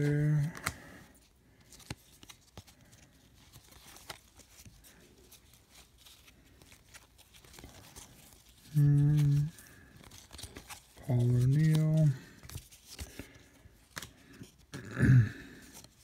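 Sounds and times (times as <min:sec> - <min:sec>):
man humming: 0:08.7 - 0:09.5, 0:14.8 - 0:15.4.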